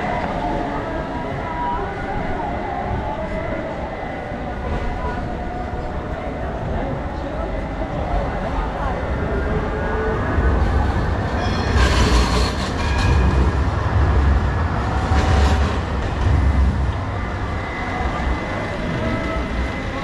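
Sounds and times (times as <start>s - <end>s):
tram wheels rumbling on rails: 0.0s - 20.0s
high wheel squeals: 11.3s - 13.4s.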